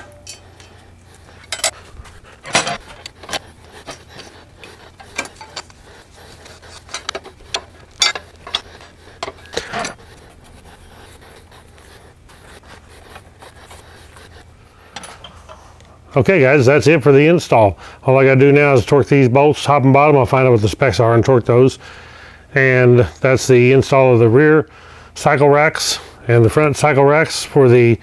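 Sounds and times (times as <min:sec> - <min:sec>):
metal tool clinks: 0:00.0 - 0:00.5.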